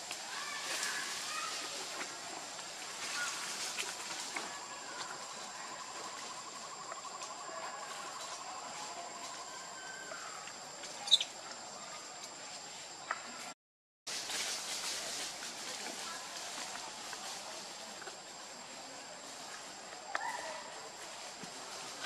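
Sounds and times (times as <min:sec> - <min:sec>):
chirps: 0:11.0 - 0:11.5.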